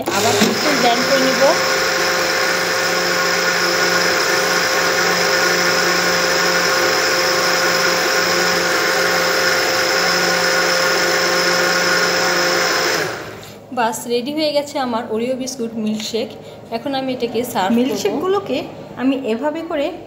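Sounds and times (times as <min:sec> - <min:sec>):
blender motor whining: 0:00.0 - 0:13.5.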